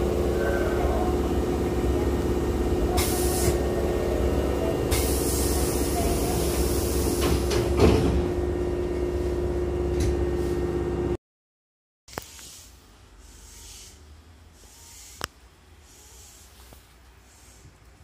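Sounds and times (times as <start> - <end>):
stopped train humming: 0.0 - 11.2
air hissing from train doors: 2.9 - 3.8, 4.8 - 7.8.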